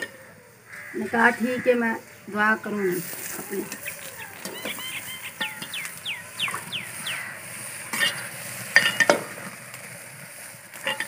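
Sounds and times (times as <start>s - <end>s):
short falling chirps: 3.7s - 7.2s.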